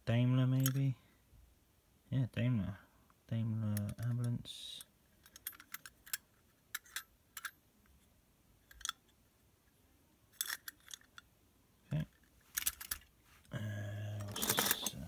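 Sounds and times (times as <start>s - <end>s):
metal toy cars clicking: 5.2s - 7.6s, 10.3s - 11.3s, 14.2s - 15.0s.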